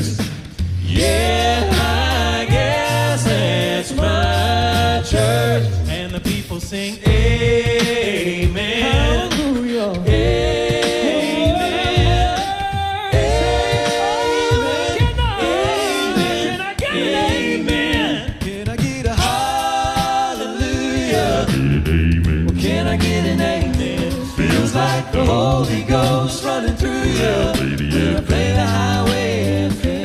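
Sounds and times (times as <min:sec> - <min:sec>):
male vocal group singing harmonies: 0:00.0 - 0:30.0
mouth-made drum beats: 0:00.0 - 0:30.0
deep bass voice holding note: 0:21.4 - 0:24.7.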